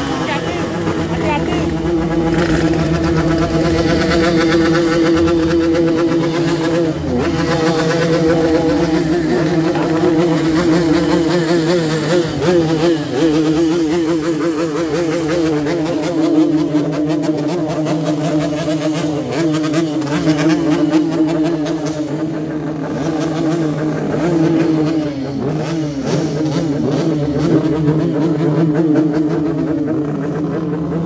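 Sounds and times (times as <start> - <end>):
motorcycle engines revving: 0.0 - 31.0.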